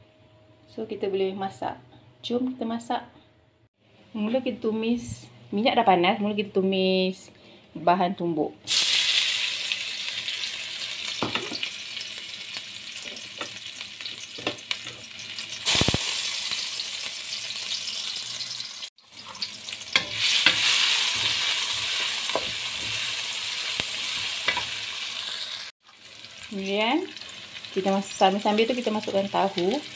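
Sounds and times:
paste sizzling in hot oil: 8.7s - 29.9s
spatula scraping and tapping wok: 19.2s - 24.8s.

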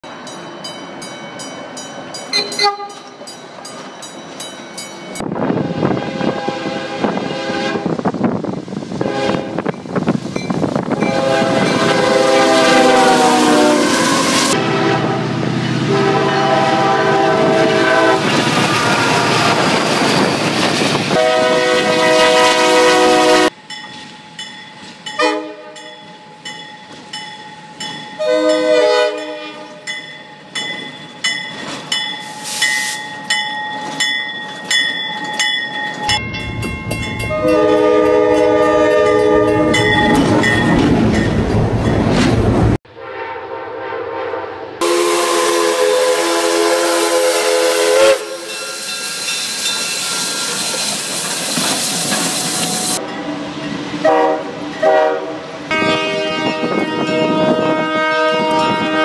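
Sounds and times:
crossing bell dinging: 0.0s - 5.4s, 9.6s - 13.7s, 23.5s - 42.2s, 48.4s - 55.9s
passing train rumble: 0.0s - 59.0s
locomotive air horn: 2.4s - 3.0s, 5.5s - 8.0s, 9.0s - 9.7s, 11.0s - 19.7s, 21.1s - 23.6s, 25.2s - 25.8s, 28.2s - 29.8s, 37.3s - 39.9s, 42.9s - 48.8s, 54.0s - 59.0s.

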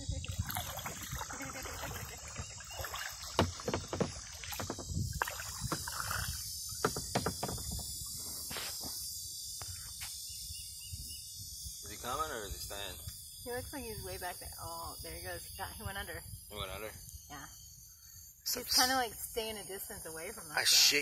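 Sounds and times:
paddle strokes splashing: 0.3s - 7.6s
irregular knocks: 3.4s - 5.0s, 6.8s - 7.9s.

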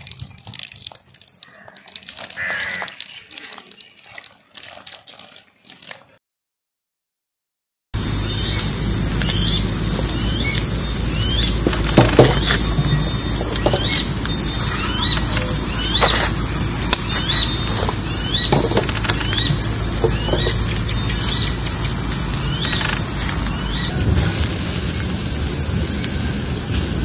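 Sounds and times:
bird rising chirp: 8.0s - 27.0s
insects droning: 8.0s - 27.0s.

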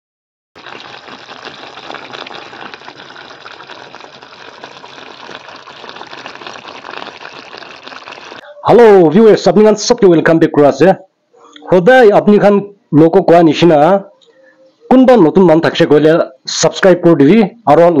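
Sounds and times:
gravy bubbling in a pot: 0.6s - 8.5s.

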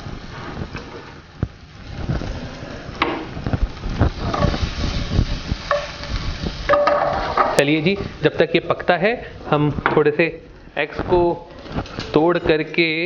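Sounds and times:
vegetables hissing in hot oil: 0.0s - 9.8s
spatula knocking frying pan: 5.6s - 7.6s.

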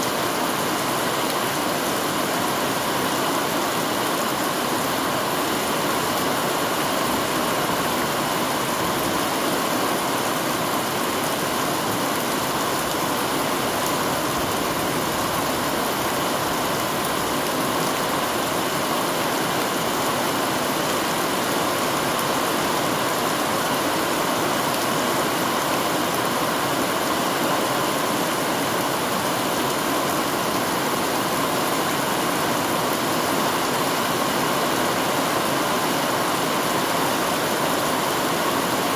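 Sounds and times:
heavy rain falling: 0.0s - 38.9s.

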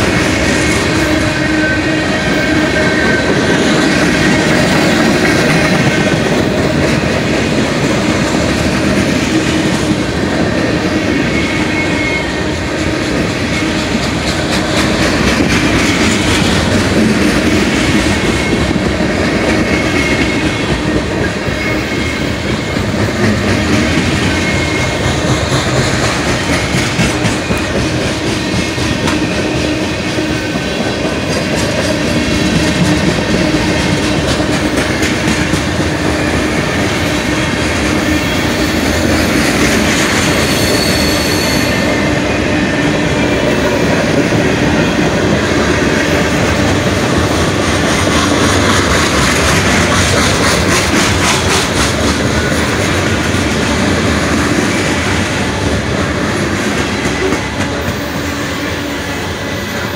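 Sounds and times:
freight train rumble: 0.0s - 59.9s
wheels clacking over rail joints: 11.4s - 58.4s
wheel squeal: 38.1s - 42.1s.

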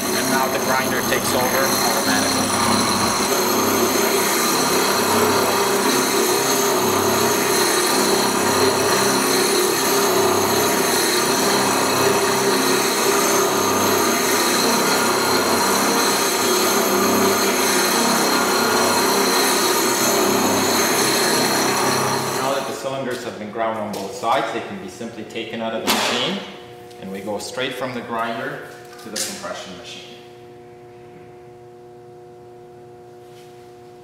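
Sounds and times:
grinder grinding concrete: 0.0s - 22.8s.

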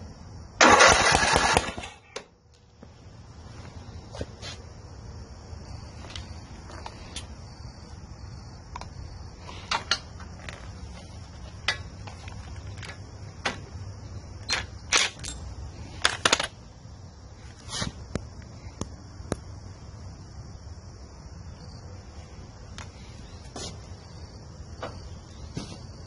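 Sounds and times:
short loud bursts: 0.6s - 2.0s
hand tools and metal fittings clinking: 9.5s - 10.8s, 14.4s - 16.6s.

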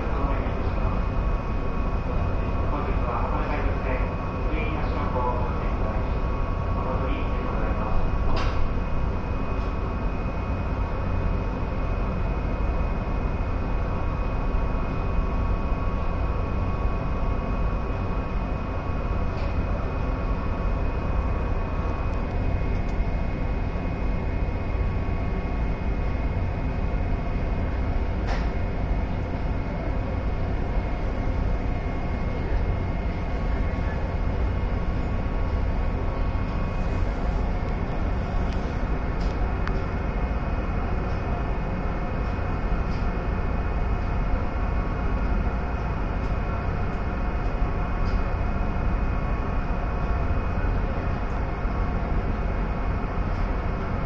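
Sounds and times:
boat engine drone: 0.0s - 54.0s
wind: 0.0s - 54.0s.

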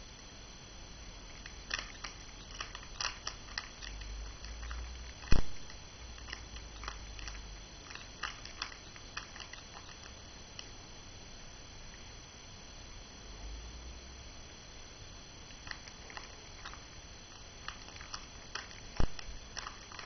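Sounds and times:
puzzle cube plastic clicking: 1.3s - 10.7s, 15.6s - 20.0s.

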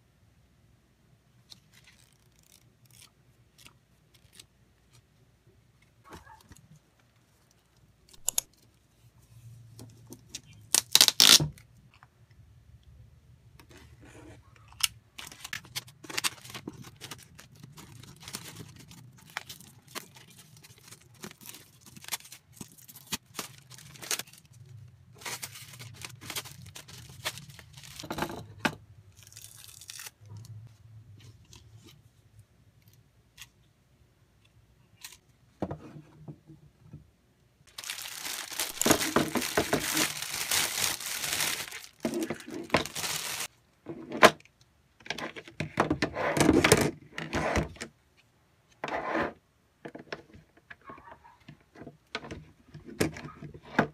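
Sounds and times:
plastic packaging crinkling: 10.4s - 11.4s, 14.7s - 28.1s, 29.2s - 30.5s, 37.7s - 43.5s
plastic ripping: 10.6s - 11.6s, 14.8s - 24.6s, 29.2s - 30.4s, 37.7s - 43.5s.

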